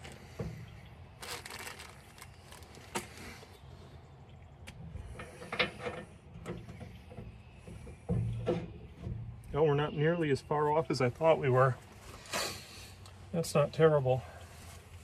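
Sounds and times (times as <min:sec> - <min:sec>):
plastic wrap rustling: 0:01.2 - 0:03.4.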